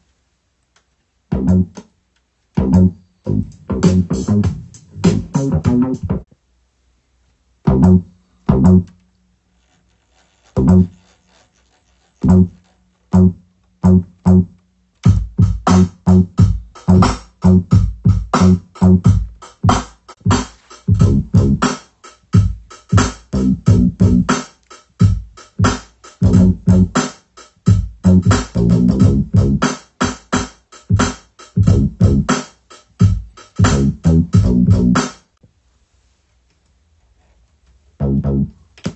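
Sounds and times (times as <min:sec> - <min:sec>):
boom-bap drum beat: 0:01.3 - 0:01.8, 0:02.6 - 0:06.3, 0:07.7 - 0:08.8, 0:15.0 - 0:35.2.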